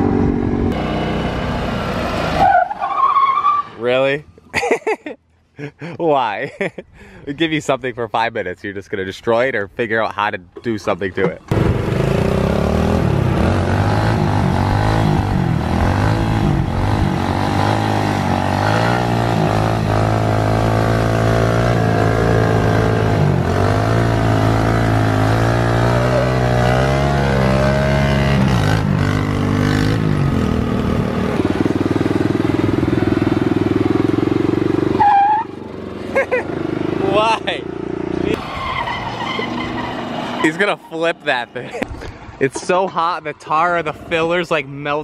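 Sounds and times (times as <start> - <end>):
motorbike engine revving: 0.0 - 2.4, 11.5 - 40.6.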